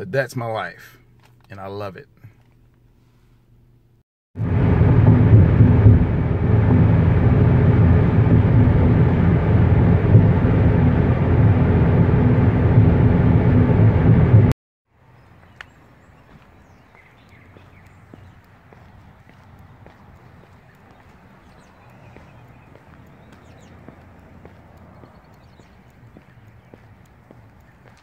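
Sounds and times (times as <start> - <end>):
car cabin road noise: 4.4 - 14.5, 16.0 - 28.0
faint outdoor ambience: 14.9 - 28.0.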